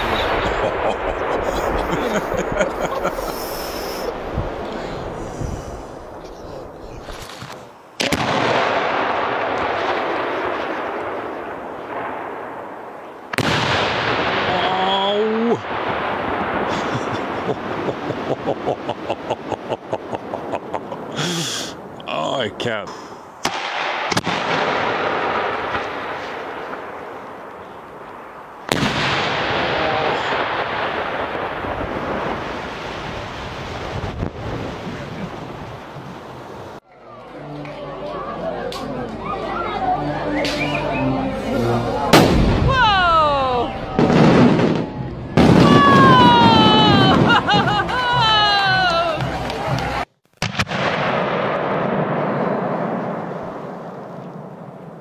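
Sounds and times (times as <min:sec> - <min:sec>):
firework mortar boom: 0:00.0 - 0:14.9, 0:15.6 - 0:18.6, 0:23.4 - 0:27.6, 0:28.7 - 0:36.8, 0:42.1 - 0:43.0, 0:43.8 - 0:48.3, 0:50.4 - 0:55.0.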